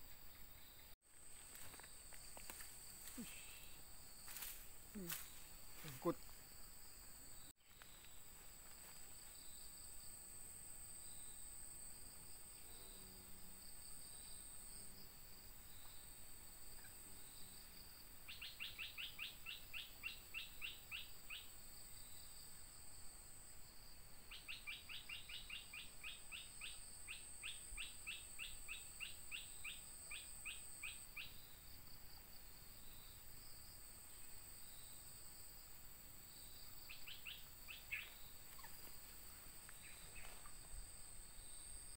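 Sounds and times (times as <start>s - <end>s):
high insect whine: 0.0s - 41.9s.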